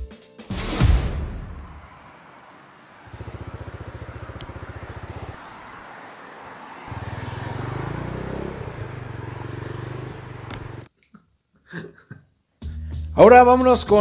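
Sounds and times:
motorcycle engine idling and revving: 1.2 - 10.9.

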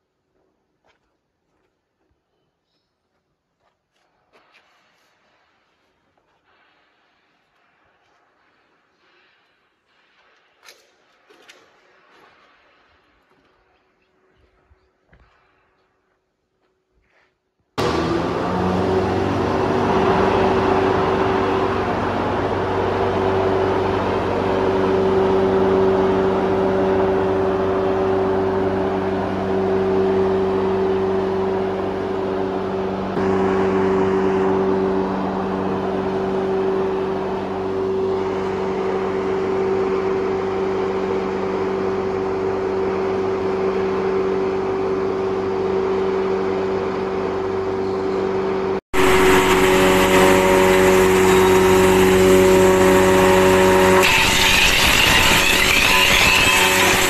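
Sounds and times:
wood chipper running: 17.8 - 57.0.

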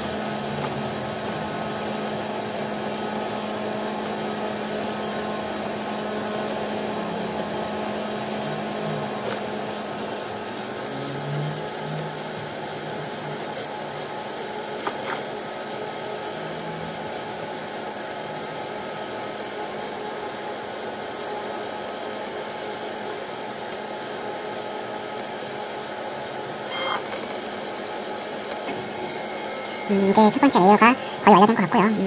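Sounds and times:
printer fans and motors whirring: 0.0 - 32.0.

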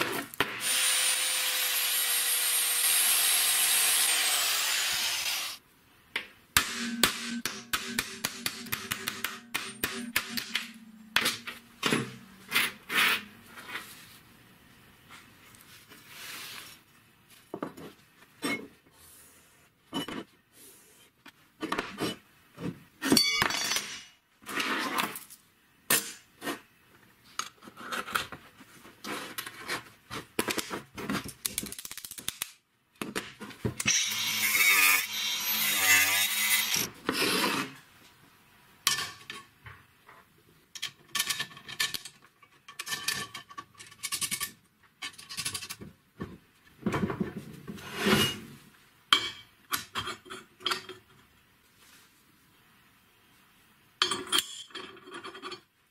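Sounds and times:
angle grinder on steel: 0.6 - 5.6, 33.9 - 36.9
steel parts clattering on wood: 40.8 - 45.8.

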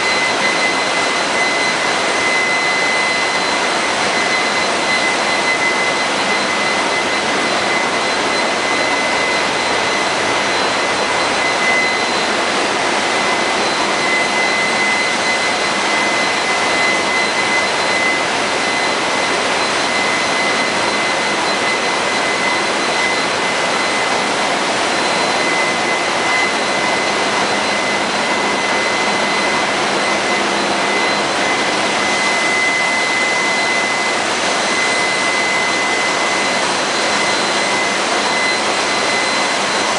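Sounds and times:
high-pitched whine: 0.0 - 39.9.

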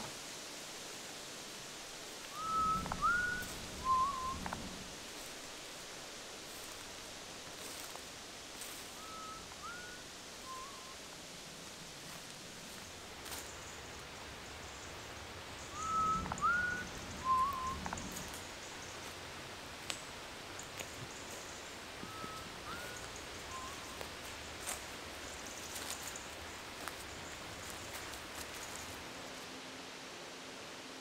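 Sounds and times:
steady outdoor hiss: 0.0 - 31.0
person whistling: 2.4 - 4.4, 15.8 - 17.8.

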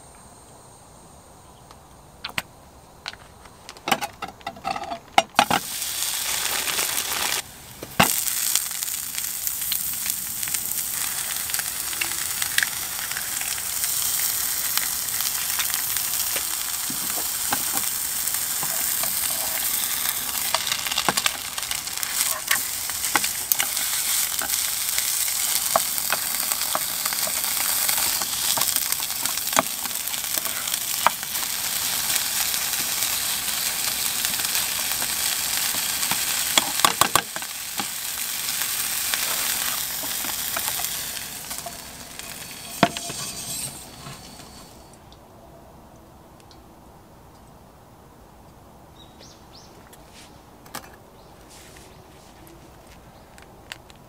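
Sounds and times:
food sizzling in oil: 5.4 - 44.9
spatula scraping pan: 18.6 - 21.3, 38.8 - 44.9.

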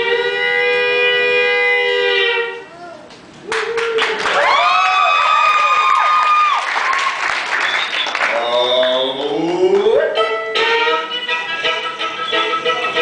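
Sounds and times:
fiddle double-stop chord: 10.2 - 13.0
fiddle gliding whistle notes: 11.1 - 13.0.

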